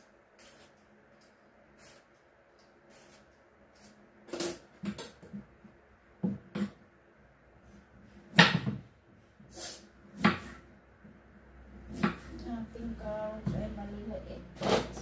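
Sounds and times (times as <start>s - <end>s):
knife scraping and cutting carrot: 0.4s - 0.8s, 14.6s - 15.0s.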